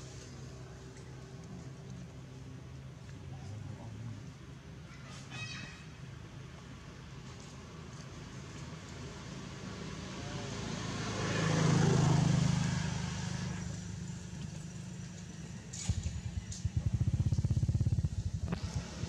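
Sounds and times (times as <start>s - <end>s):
low engine hum: 6.6s - 19.0s
engine putter close by: 13.2s - 19.0s.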